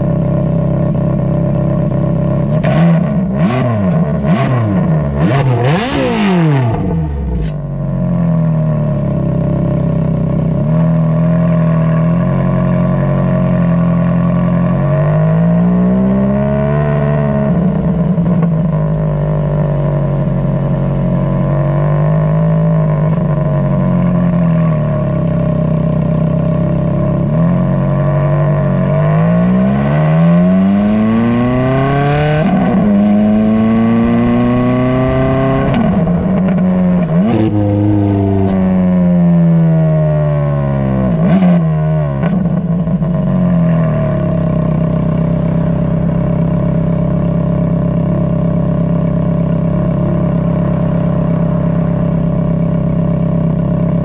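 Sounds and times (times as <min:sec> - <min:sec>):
sports car exhaust revving: 0:00.0 - 0:54.0.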